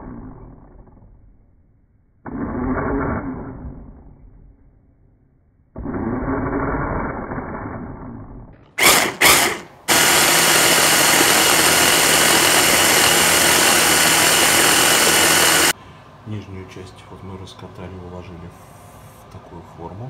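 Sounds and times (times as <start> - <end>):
electric blender motor running: 8.8 - 15.8.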